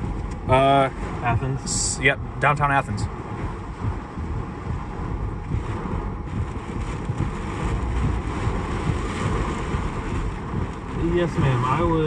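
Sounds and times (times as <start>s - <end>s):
rain and wind on a car: 0.0s - 12.0s
uneven low rumble: 0.0s - 12.0s.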